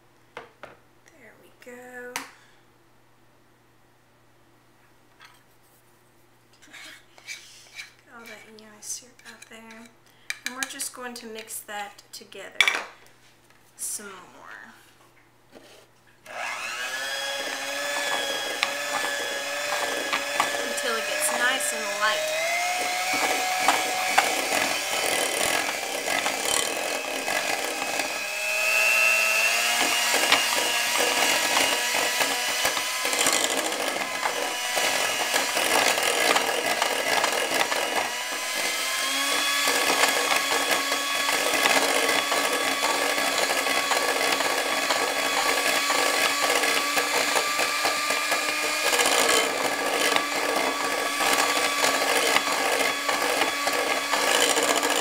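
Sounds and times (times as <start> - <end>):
hand mixer motor whine: 16.3 - 55.0
beaters scraping glass bowl: 17.8 - 22.2.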